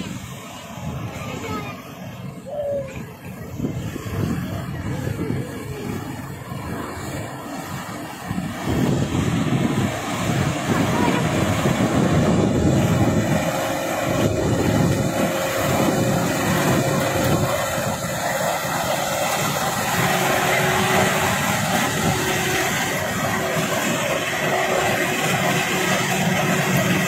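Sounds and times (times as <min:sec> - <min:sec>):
combine harvester engine and threshing: 0:00.0 - 0:27.0.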